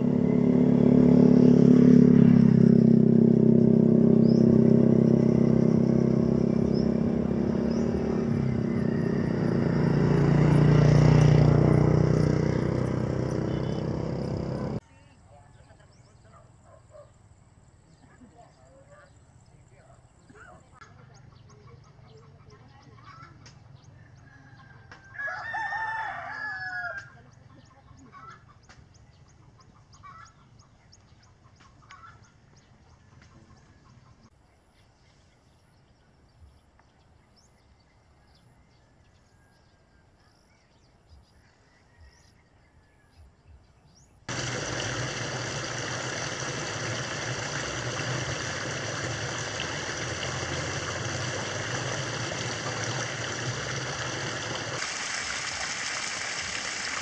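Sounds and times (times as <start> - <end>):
rooster crowing: 8.0 - 10.0, 24.0 - 27.1
running water rushing: 44.3 - 57.0.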